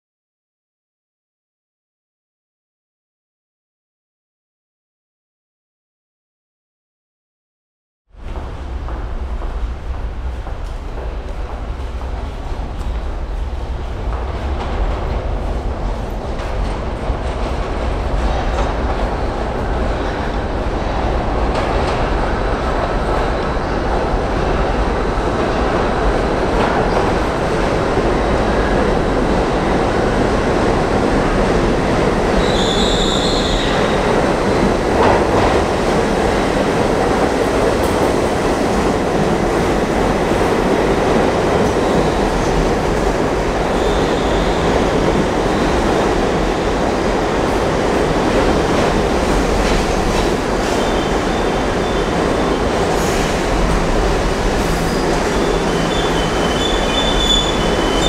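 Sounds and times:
train wheels rumbling on rails: 8.2s - 58.0s
wheel squeal: 32.4s - 34.0s, 54.9s - 58.0s.

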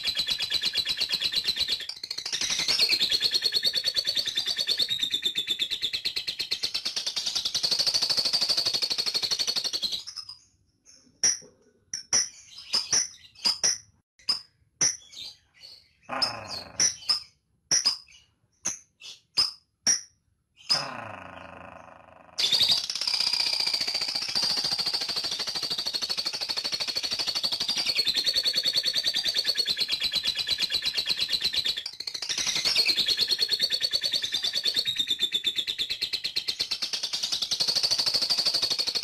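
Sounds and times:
bird sharp chirps: 0.0s - 39.0s
bird chattering trill: 16.1s - 17.9s.

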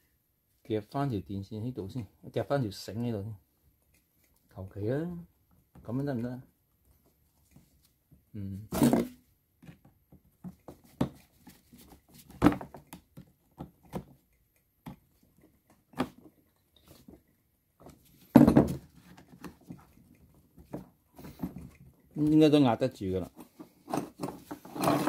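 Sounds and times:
screwdriver clicking and scraping: 23.4s - 25.0s.

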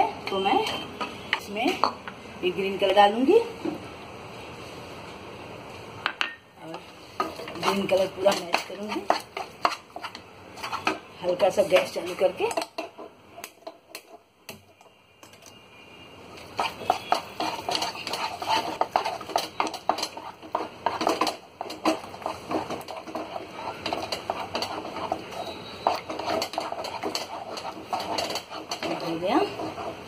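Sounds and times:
spatula scraping a steel pan: 7.2s - 14.2s, 16.5s - 30.0s.

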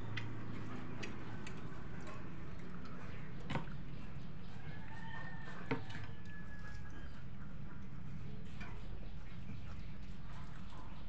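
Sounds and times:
clicks of eating by hand: 0.0s - 3.9s.

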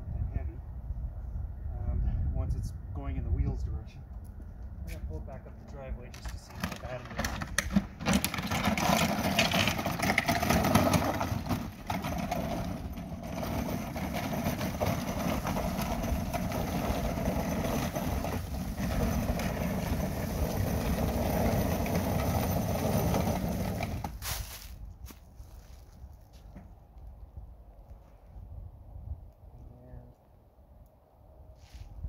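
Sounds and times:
cart scraping over concrete: 6.1s - 24.8s.

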